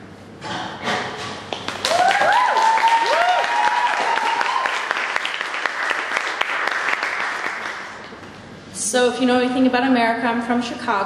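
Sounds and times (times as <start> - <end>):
audience clapping: 1.5 - 8.3
crowd whooping: 1.8 - 5.4.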